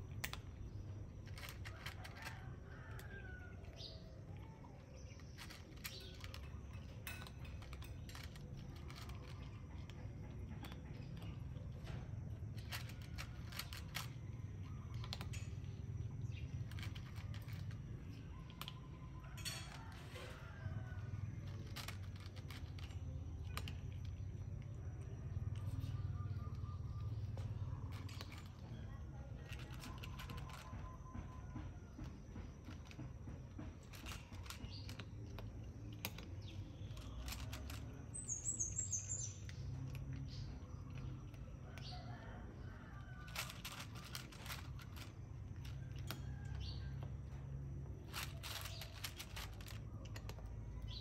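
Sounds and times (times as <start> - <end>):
cat crunching dry kibble: 0.0 - 51.0
bird chirping: 36.4 - 41.2.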